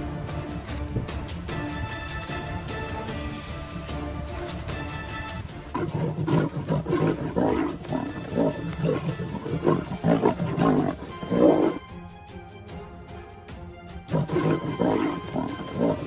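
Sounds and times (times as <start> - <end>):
background music: 0.0 - 16.0
lion growling and snarling: 5.7 - 11.8, 14.1 - 16.0.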